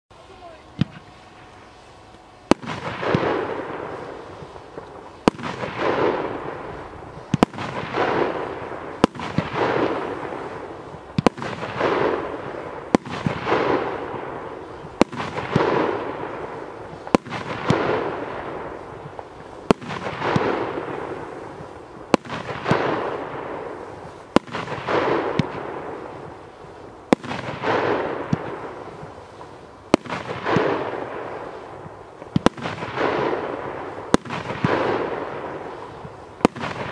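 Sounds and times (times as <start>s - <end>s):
firework crackling: 0.1s - 36.9s
firework shots: 0.1s - 36.9s.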